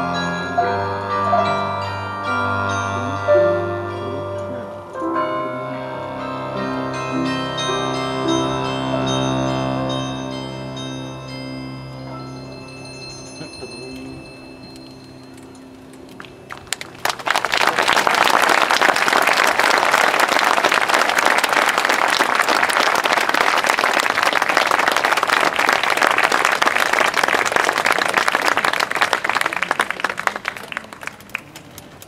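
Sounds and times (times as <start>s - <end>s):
audience applauding: 16.2s - 32.0s.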